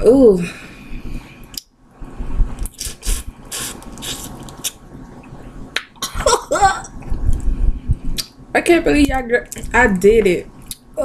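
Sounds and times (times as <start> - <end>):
wet sucking and slurping: 2.6 - 4.8.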